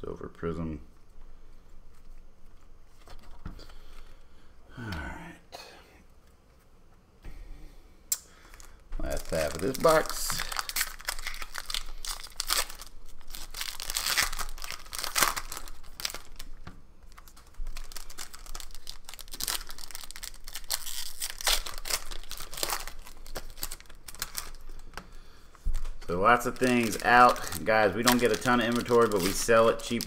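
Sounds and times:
foil wrapper crinkling: 0:08.4 - 0:30.0.

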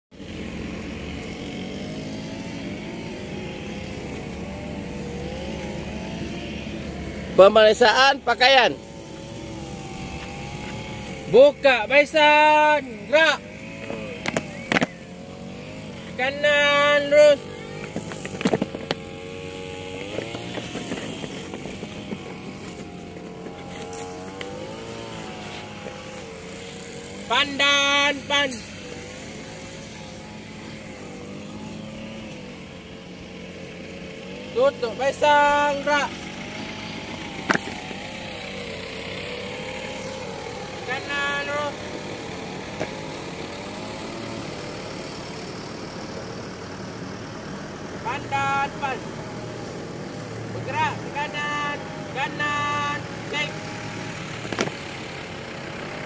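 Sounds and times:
motor whining: 0:00.1 - 0:48.1, 0:48.7 - 0:56.0
boots stamping and shuffling: 0:19.9 - 0:26.8.

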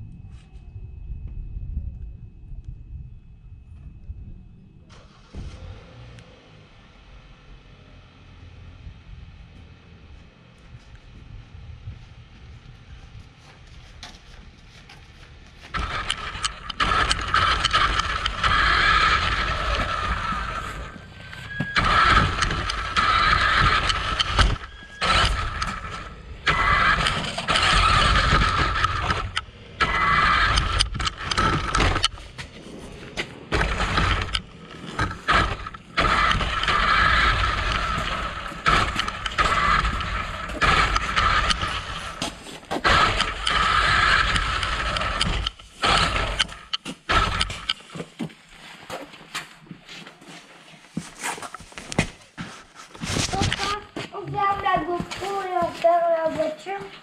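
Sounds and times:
tyres rolling over pavement: 0:14.8 - 0:49.1
electric toy car motor whining: 0:15.7 - 0:32.4, 0:33.5 - 0:48.0.

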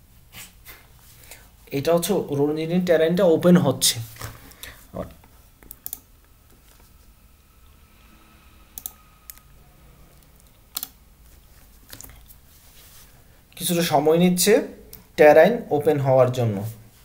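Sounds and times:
computer mouse clicks: 0:05.6 - 0:06.1, 0:08.8 - 0:09.4, 0:10.3 - 0:11.0.

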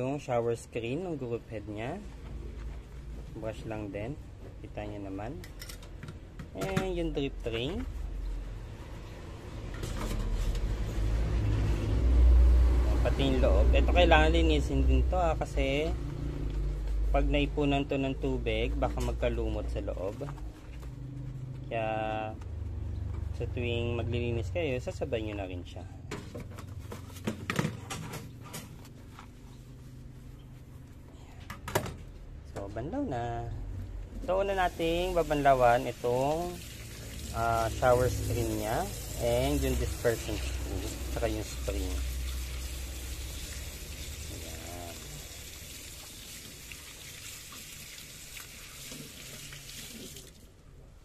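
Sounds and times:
soapy hands rubbing plastic: 0:18.0 - 0:22.8, 0:26.6 - 0:31.1, 0:34.3 - 0:50.5.

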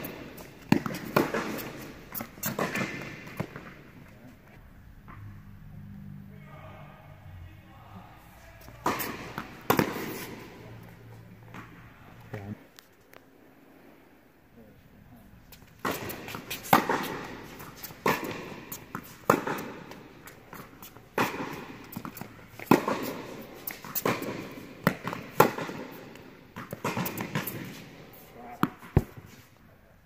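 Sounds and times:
tennis racquets hitting ball: 0:00.0 - 0:04.5, 0:08.6 - 0:11.9, 0:15.5 - 0:29.5.

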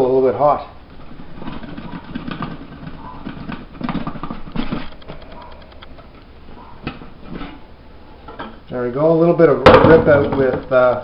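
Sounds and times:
quick run of clicks: 0:01.5 - 0:06.1.

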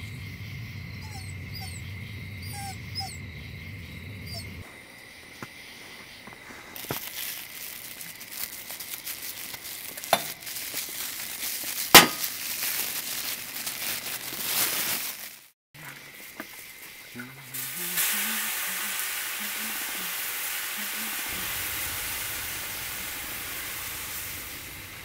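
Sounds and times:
plastic bag crinkling: 0:06.6 - 0:15.6.

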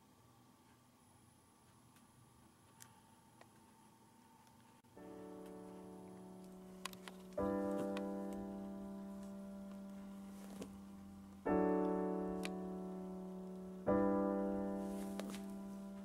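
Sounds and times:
soft piano chords: 0:04.9 - 0:16.0.

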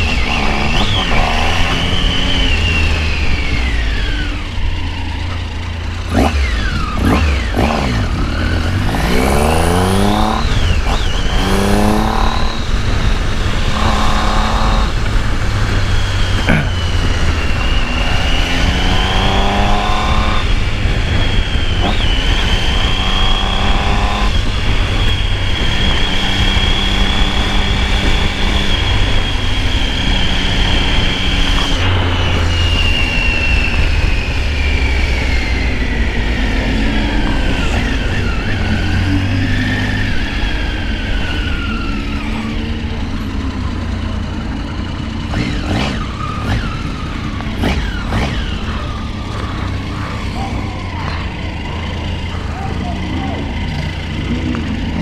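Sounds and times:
high whine: 0:00.0 - 0:55.0
motorcycle engine accelerating: 0:00.0 - 0:55.0
wind rush on microphone: 0:07.9 - 0:42.0.

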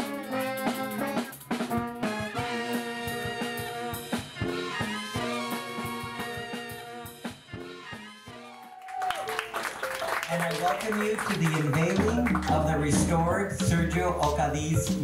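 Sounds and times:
brass band playing: 0:00.0 - 0:09.5
drum hits: 0:11.7 - 0:15.0.

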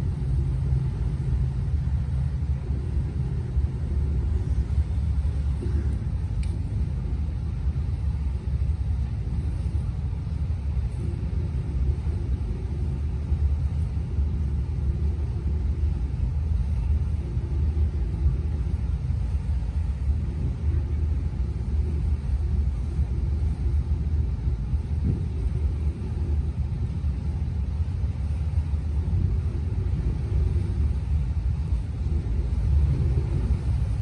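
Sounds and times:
boat engine rumble: 0:00.0 - 0:34.0.

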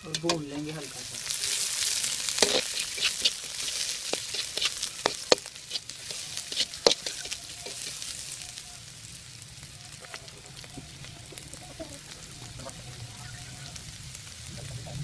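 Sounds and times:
vegetables sizzling: 0:00.0 - 0:15.0
spatula scraping pan: 0:00.1 - 0:08.2.

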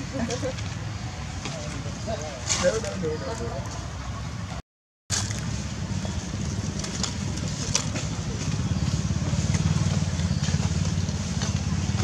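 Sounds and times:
vehicle engine running: 0:05.4 - 0:12.0.

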